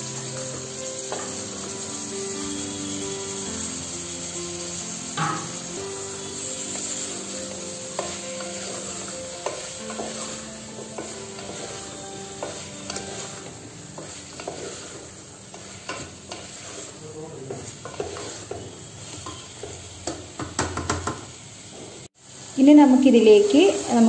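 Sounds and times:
vegetables sizzling in a pot: 0:00.0 - 0:24.0
wooden spatula scraping a pot: 0:07.9 - 0:20.0.

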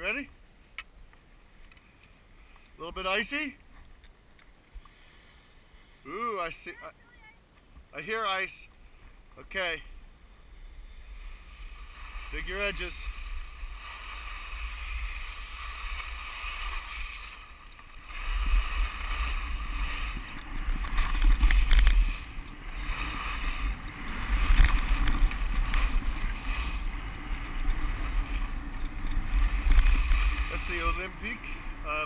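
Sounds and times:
wind rumbling on microphone: 0:10.2 - 0:32.0
skis scraping over icy snow: 0:10.8 - 0:32.0.

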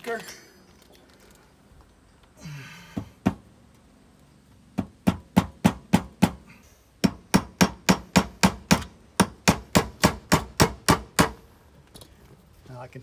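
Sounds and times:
hammer striking anchor into brick: 0:07.0 - 0:11.4.

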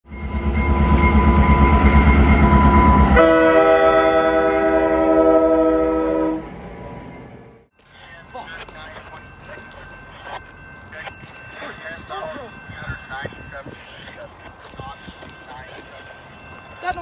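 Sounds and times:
train rumbling: 0:00.1 - 0:17.0
locomotive air horn chord: 0:00.8 - 0:06.6.

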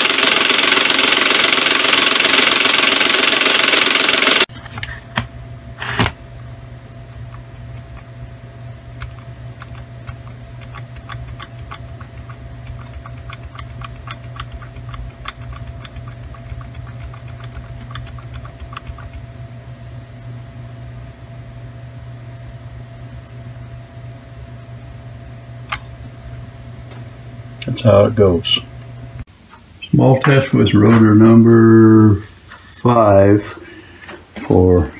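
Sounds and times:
steady low hum: 0:04.4 - 0:34.9
computer clicking: 0:09.0 - 0:19.2.

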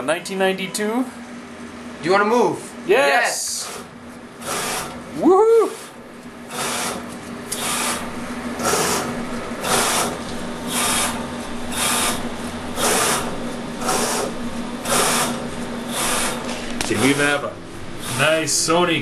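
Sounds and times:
steady low hum: 0:00.0 - 0:19.0
robot motors whirring: 0:03.5 - 0:05.0, 0:06.5 - 0:18.5.

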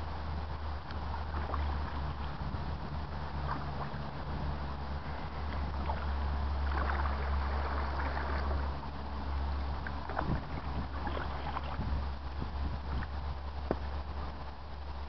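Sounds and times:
paddle splashes: 0:00.0 - 0:14.4
wind rumble on microphone: 0:00.0 - 0:15.0.

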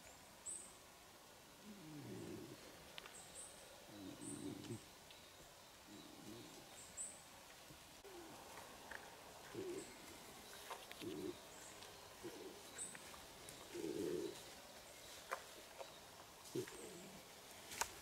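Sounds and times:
low cooing calls: 0:01.6 - 0:02.8, 0:03.8 - 0:04.9, 0:05.8 - 0:07.0, 0:08.0 - 0:14.6, 0:16.4 - 0:17.4.

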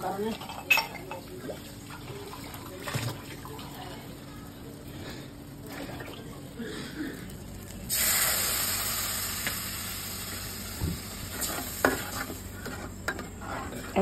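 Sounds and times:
paste sizzling in hot oil: 0:07.8 - 0:12.9.

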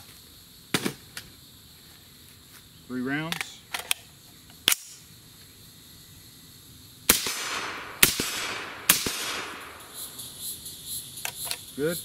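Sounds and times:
rifle shots echoing: 0:07.1 - 0:10.2.

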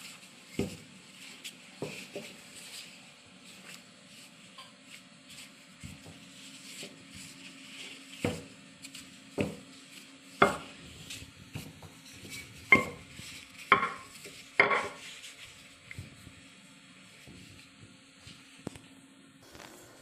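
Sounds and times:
utensils knocking against dishes: 0:11.6 - 0:13.1, 0:13.7 - 0:15.0.

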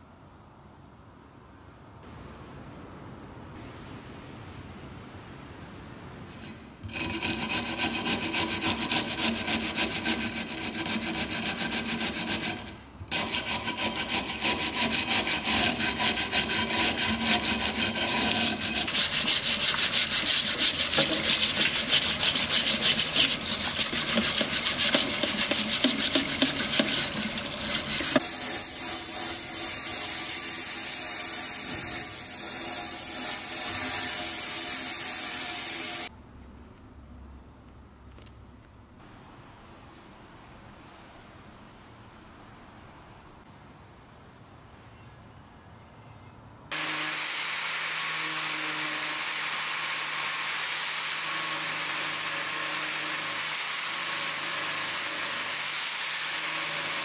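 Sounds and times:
brush scrubbing metal: 0:06.3 - 0:30.2
sandblaster hissing: 0:15.0 - 0:36.1, 0:46.7 - 0:57.0
running tap water: 0:15.6 - 0:28.4.

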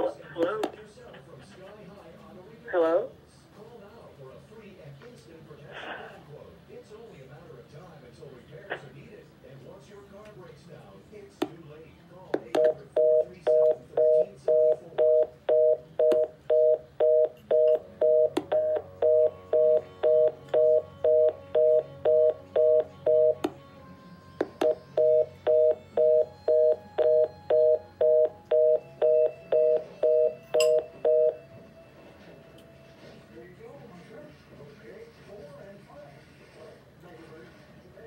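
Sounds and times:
telephone busy tone beeping: 0:12.6 - 0:23.4, 0:24.6 - 0:31.5.

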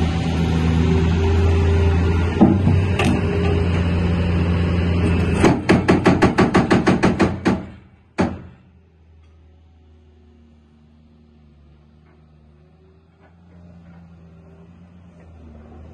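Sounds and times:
diesel engine running: 0:00.0 - 0:15.9
hydraulic breaker hammering: 0:02.4 - 0:03.6, 0:05.1 - 0:08.7.

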